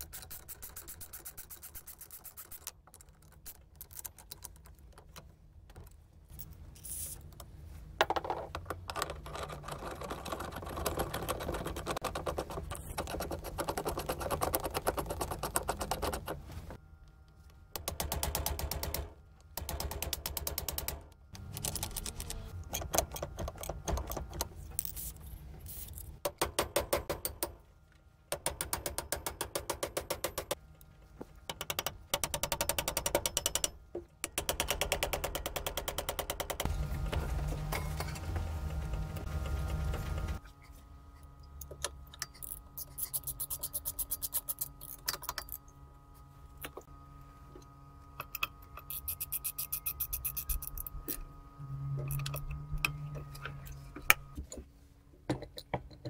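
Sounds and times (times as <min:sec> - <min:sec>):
clatter of tools and steel parts: 0:39.9 - 0:45.8.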